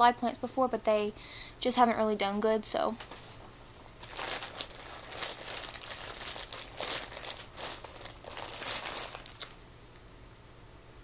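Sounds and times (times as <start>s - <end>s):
plastic bags crinkling: 4.0s - 9.6s.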